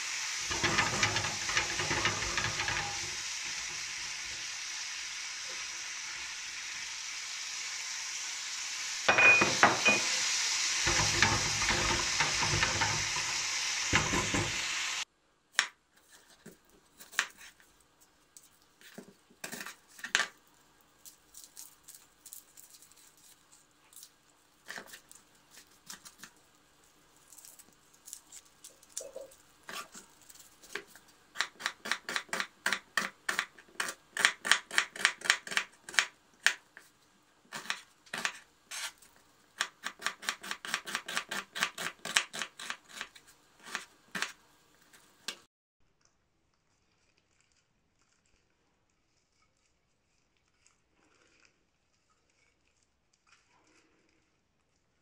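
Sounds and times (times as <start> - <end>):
spatula stirring in a pan: 0.0 - 4.5, 9.3 - 15.0, 16.0 - 20.8, 46.7 - 55.0
meat sizzling in a frying pan: 0.0 - 15.0
knocks and rustles peeling onion: 15.6 - 45.4.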